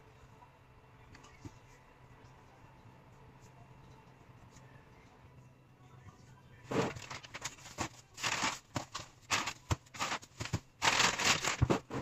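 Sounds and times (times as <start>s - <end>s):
plastic packaging crinkling: 6.9s - 11.9s.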